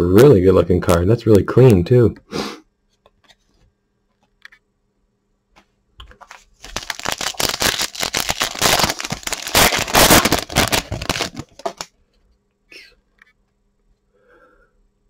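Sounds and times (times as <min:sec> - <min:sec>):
card pack wrapper crinkling: 0:06.1 - 0:11.9.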